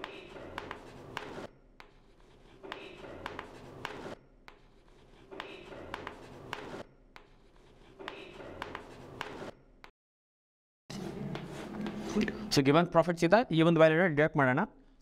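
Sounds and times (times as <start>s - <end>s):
chalk scratching on blackboard: 0.0s - 9.5s, 10.9s - 12.2s
chalk tapping: 0.0s - 9.5s, 11.0s - 12.3s.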